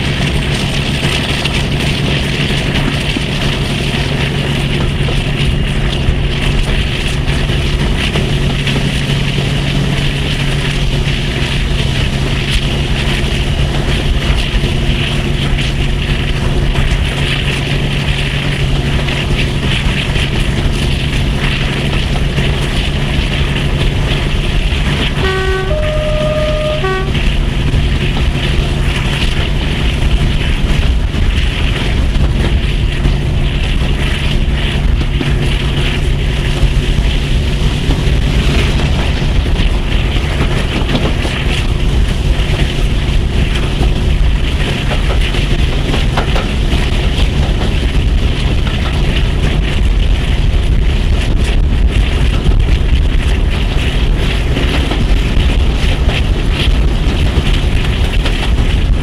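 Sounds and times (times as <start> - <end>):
diesel locomotive engines droning: 0.0 - 59.0
train wheel noise: 0.0 - 59.0
wind: 0.0 - 59.0
two-tone train horn: 25.0 - 27.7.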